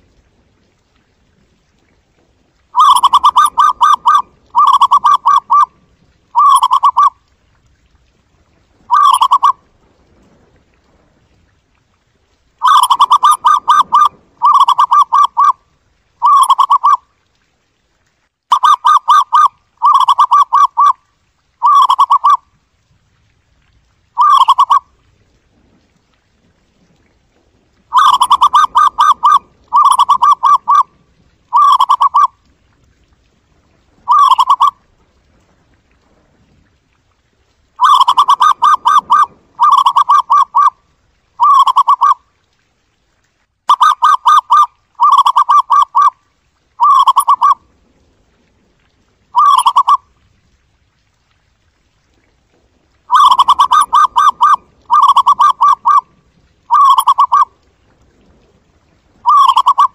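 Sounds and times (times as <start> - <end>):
dove cooing in rapid trills: 2.8 - 5.7, 6.3 - 7.1, 8.9 - 9.6, 12.6 - 15.6, 16.2 - 17.0, 18.5 - 21.0, 21.6 - 22.4, 24.2 - 24.8, 27.9 - 30.9, 31.5 - 32.3, 34.1 - 34.8, 37.8 - 40.7, 41.4 - 42.2, 43.7 - 46.1, 46.8 - 47.6, 49.4 - 50.0, 53.1 - 56.0, 56.7 - 57.5, 59.2 - 59.9.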